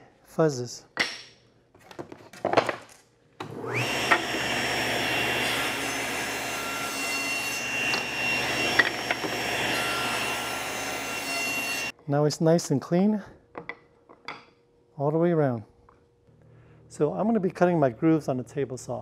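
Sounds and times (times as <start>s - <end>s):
saw cutting wood blocks: 3.4s - 11.9s
table saw motor whining: 3.4s - 11.9s.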